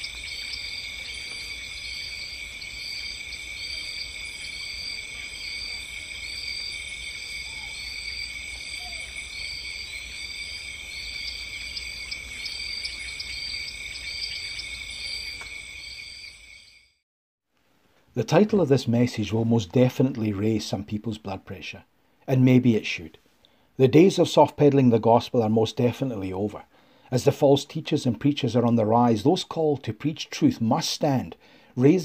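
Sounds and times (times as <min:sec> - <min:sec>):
insect chirp: 0:00.0 - 0:17.0
insects trilling: 0:00.0 - 0:17.0.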